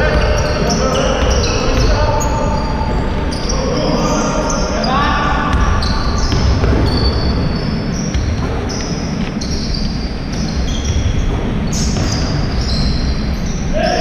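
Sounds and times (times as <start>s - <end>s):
basketball bouncing on court: 0.0s - 3.5s, 5.4s - 13.7s
sneakers squeaking on floor: 0.0s - 14.0s.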